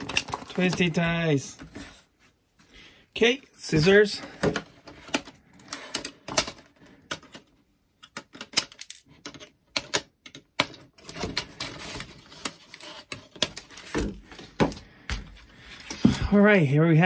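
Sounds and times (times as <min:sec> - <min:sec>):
plastic rustling: 0:00.0 - 0:02.1.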